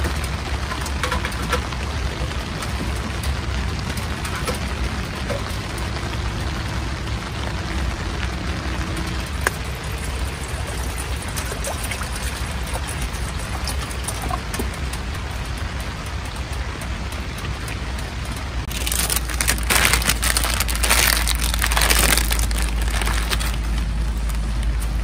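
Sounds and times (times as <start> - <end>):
rain on tent fabric: 0.0 - 25.0
water poured into a pot: 9.4 - 14.4.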